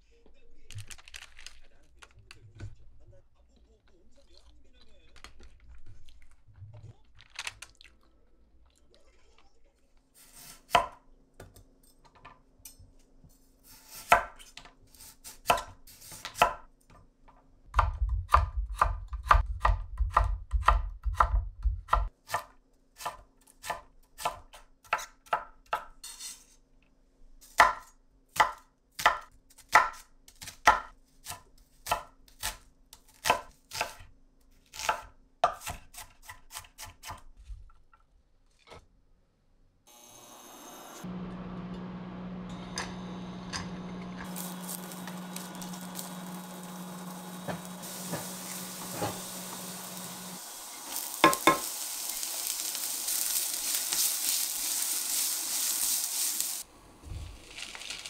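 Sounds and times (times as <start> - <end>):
knife chopping on cutting board: 15.3 - 16.6, 17.8 - 25.9, 27.6 - 34.1, 34.7 - 37.2.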